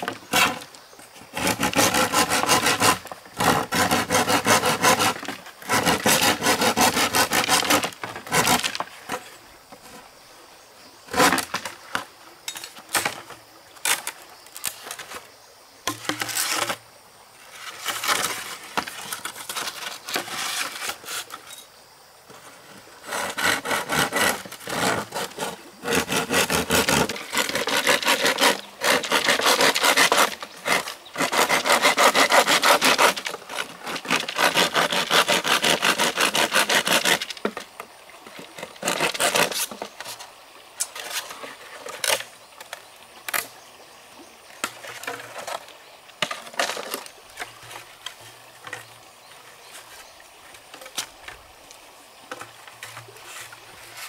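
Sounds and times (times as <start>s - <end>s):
hand saw sawing wood: 0.0s - 0.7s, 1.3s - 9.2s, 11.1s - 11.6s, 23.0s - 37.6s, 38.6s - 40.2s
scrapes and knocks: 0.0s - 10.1s, 11.1s - 15.3s, 15.9s - 16.8s, 17.5s - 21.6s, 22.3s - 37.7s, 38.3s - 40.2s, 44.6s - 49.0s.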